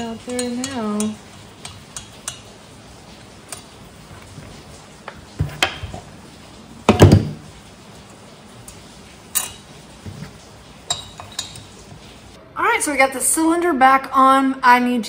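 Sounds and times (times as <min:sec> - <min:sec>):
small metal tools clinking: 0:00.0 - 0:01.2.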